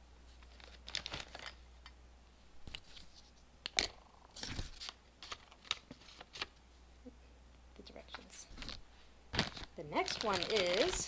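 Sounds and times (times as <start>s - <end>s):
packaging crinkling rustle: 0.3s - 1.6s, 4.3s - 6.6s, 8.5s - 11.0s.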